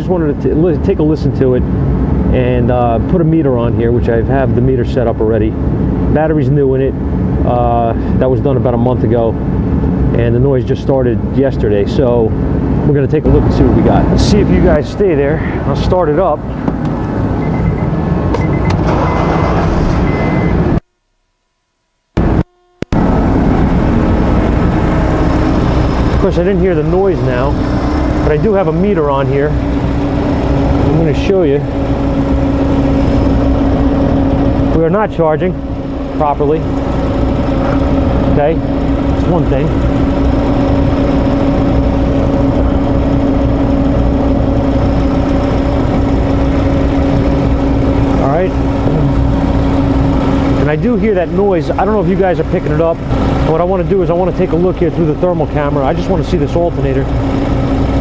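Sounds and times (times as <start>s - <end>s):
steady even hum: 0.0s - 58.0s
car engine idling: 22.9s - 58.0s.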